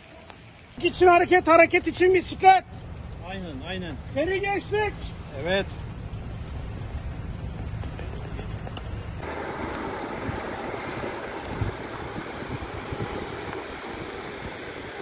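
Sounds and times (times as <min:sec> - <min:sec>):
wind rushing over microphone: 0:09.0 - 0:15.0.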